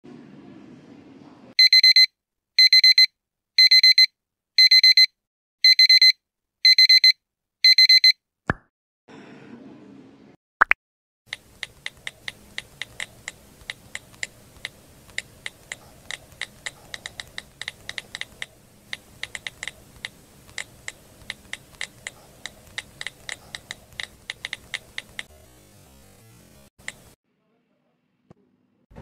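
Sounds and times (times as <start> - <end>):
keyboard typing clicks: 11.3 - 25.3, 26.8 - 27.1.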